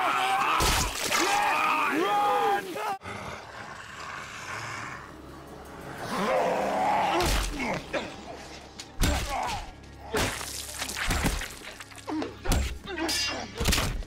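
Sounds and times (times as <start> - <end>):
guttural growl: 2.8 - 8.3.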